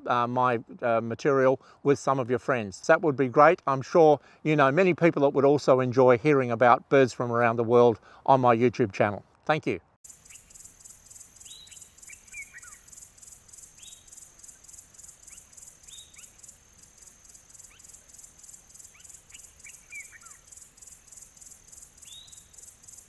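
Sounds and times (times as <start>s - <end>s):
insect chorus: 10.0s - 23.0s
bird whistles and chirps: 11.4s - 12.9s, 15.2s - 16.5s, 17.5s - 20.9s, 22.0s - 22.7s.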